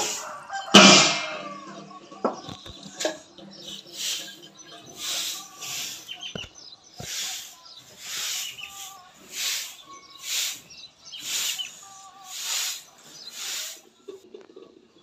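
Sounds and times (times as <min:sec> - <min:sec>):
broom sweeping concrete: 0:00.0 - 0:00.4, 0:02.9 - 0:14.2
faint bird calls: 0:02.4 - 0:14.2.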